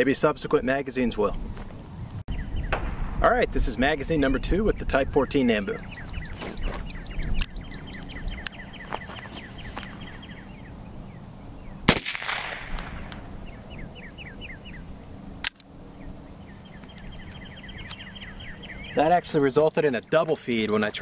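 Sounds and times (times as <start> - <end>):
pistol shot with echo: 2.7 - 3.2, 11.9 - 13.2.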